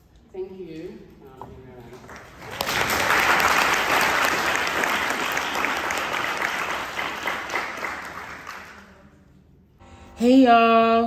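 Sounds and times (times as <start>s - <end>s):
audience applauding: 2.0s - 9.1s.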